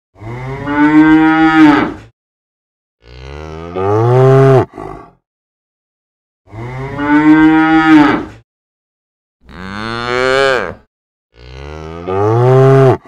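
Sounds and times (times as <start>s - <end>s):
cow mooing: 0.2s - 2.0s, 3.0s - 5.1s, 6.5s - 8.3s, 9.5s - 13.0s.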